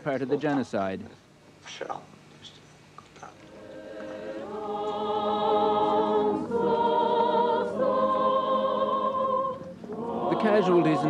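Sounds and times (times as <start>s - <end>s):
choir singing held chords: 3.4s - 11.0s.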